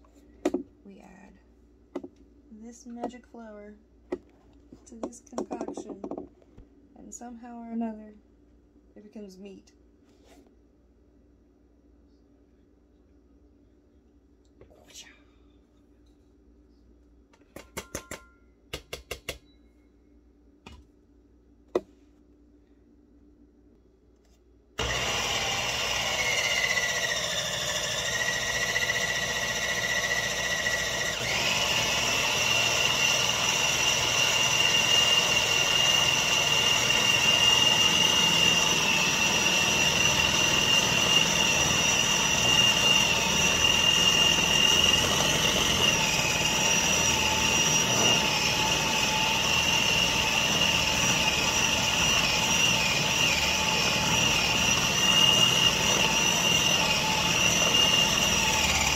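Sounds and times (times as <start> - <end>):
food processor motor whine: 24.8 - 58.9.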